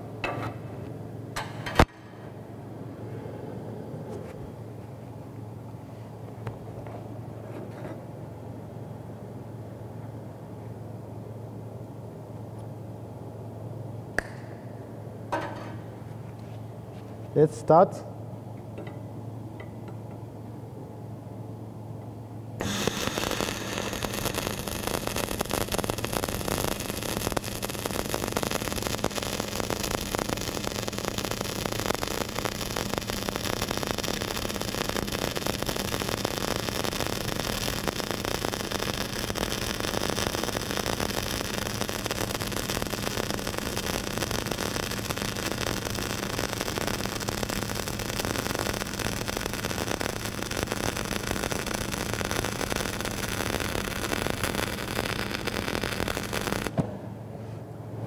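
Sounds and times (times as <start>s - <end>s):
low hum: 18.0s - 58.0s
welding arc crackling: 22.6s - 56.8s.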